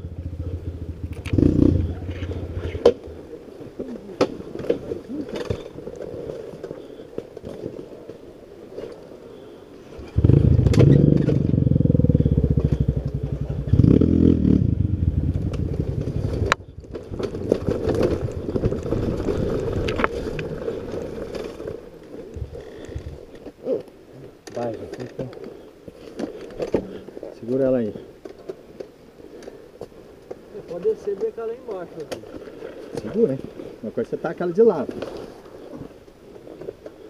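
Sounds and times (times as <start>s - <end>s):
dirt bike engine revving: 0.0s - 3.1s, 10.0s - 16.5s
brush and dirt scraping: 0.1s - 11.7s, 15.4s - 37.0s.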